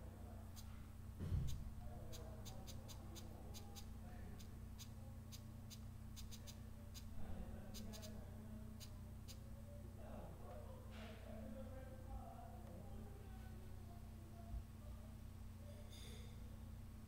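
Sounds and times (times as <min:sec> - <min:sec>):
low electrical hum: 0:00.0 - 0:17.0
dull thump: 0:01.2 - 0:01.7
computer keys and mouse clicks: 0:06.2 - 0:07.1.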